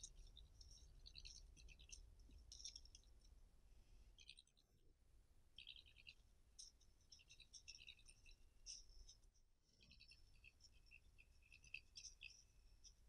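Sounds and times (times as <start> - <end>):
badger clicking and scratching: 5.6 - 9.2, 9.8 - 13.0.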